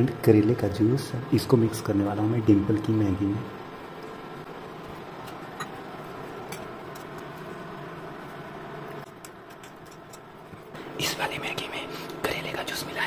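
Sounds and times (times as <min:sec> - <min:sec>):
fan-like hum: 0:00.0 - 0:13.0
steel bowls clicking: 0:09.1 - 0:10.3.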